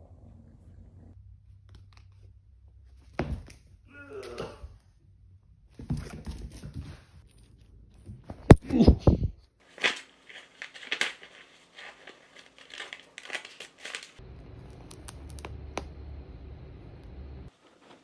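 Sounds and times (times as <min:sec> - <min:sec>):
kitten scratching paper: 0:09.7 - 0:15.5
low steady hum: 0:14.2 - 0:17.5.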